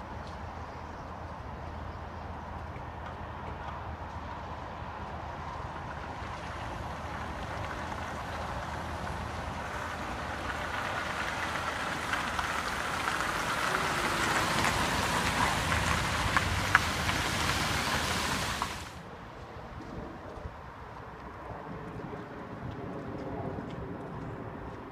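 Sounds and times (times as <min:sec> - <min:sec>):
tyres hissing on wet road: 0:05.9 - 0:19.0.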